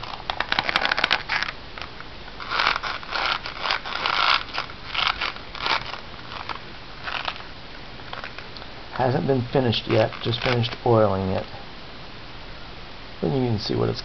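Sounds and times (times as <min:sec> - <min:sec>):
leather rubbing and scraping: 0:02.4 - 0:07.5, 0:09.1 - 0:10.9.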